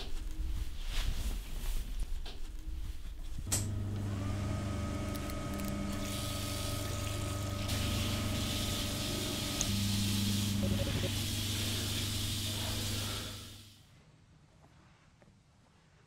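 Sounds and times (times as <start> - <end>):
electrical hum with whine: 0.0 - 13.8
tap running into a basin: 5.9 - 11.4.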